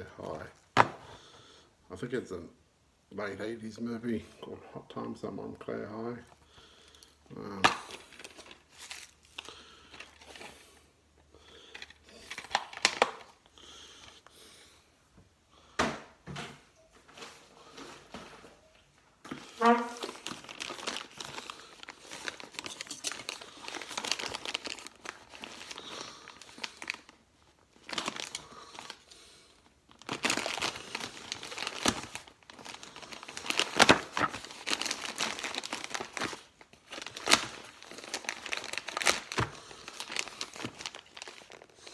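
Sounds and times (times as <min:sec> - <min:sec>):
plastic satchel crinkling and tearing: 0:07.4 - 0:10.8, 0:11.6 - 0:13.5, 0:19.5 - 0:41.9.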